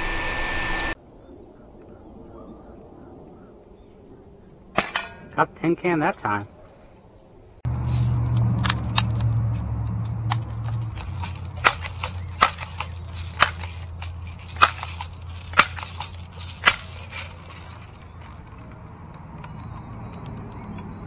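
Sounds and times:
low rumble: 0:07.5 - 0:19.9
air rifle pump clicks: 0:10.3 - 0:18.8.

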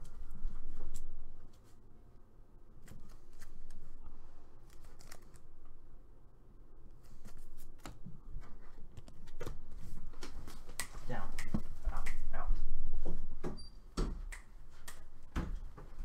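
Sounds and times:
cards rustling and sliding: 0:02.8 - 0:05.6.

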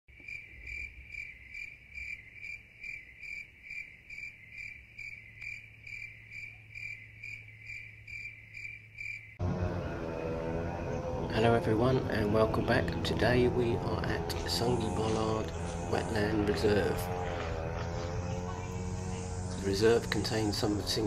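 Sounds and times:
cricket chirping: 0:00.1 - 0:09.4, 0:14.1 - 0:21.0.

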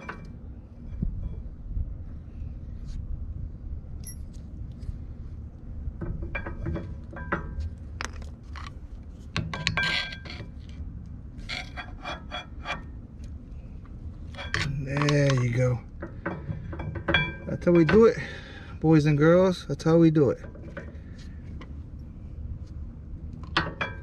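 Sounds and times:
short metallic ring: 0:04.0 - 0:04.4.

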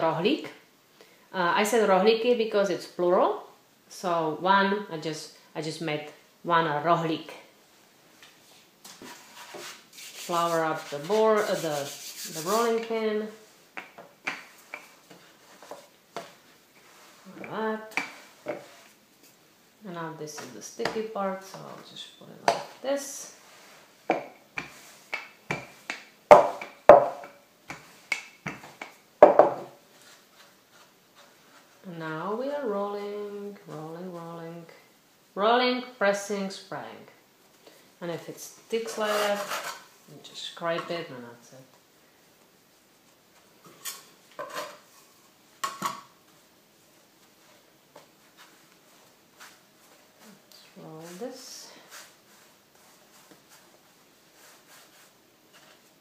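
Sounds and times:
rolling pin knocking on board: 0:26.3 - 0:28.6, 0:29.2 - 0:29.7.

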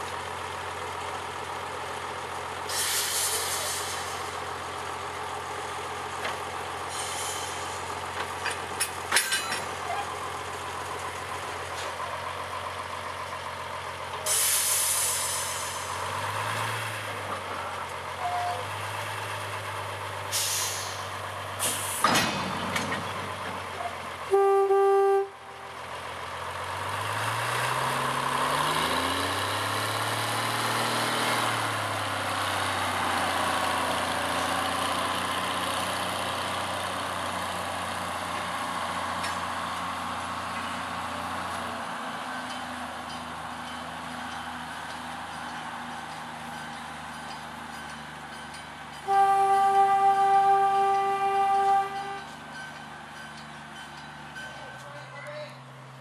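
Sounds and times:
diesel locomotive engine: 0:00.0 - 0:56.0
locomotive horn blast: 0:18.2 - 0:18.7, 0:24.3 - 0:25.6, 0:49.0 - 0:52.4.

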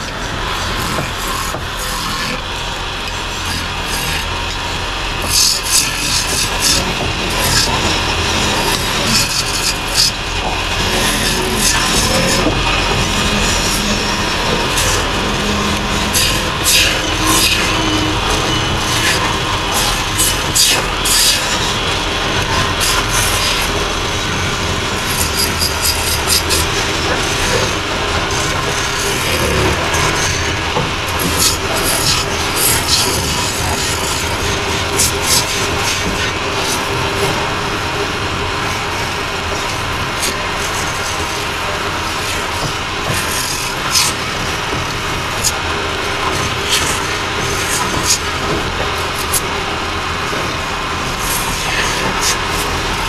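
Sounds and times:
gouge scraping wood: 0:00.0 - 0:37.6
lathe humming: 0:00.0 - 0:53.0
sharp hissing cuts: 0:05.2 - 0:36.8.

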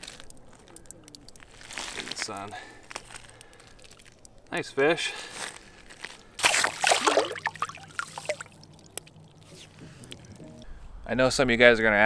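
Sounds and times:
fish splashing into water: 0:06.4 - 0:09.5
water sloshing and dripping: 0:06.4 - 0:10.7.

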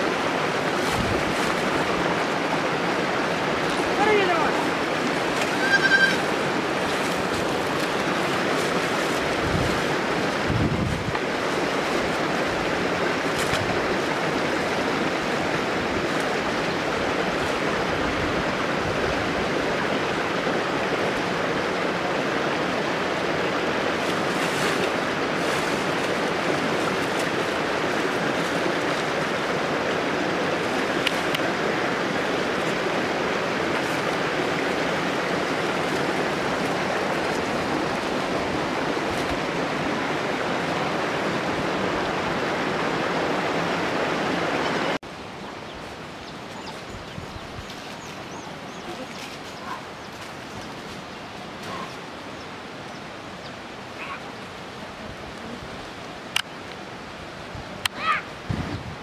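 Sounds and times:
running water rushing: 0:00.0 - 0:59.0.

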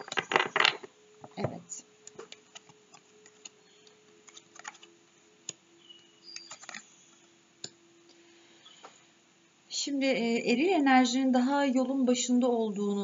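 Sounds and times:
cards sliding: 0:04.2 - 0:04.9.

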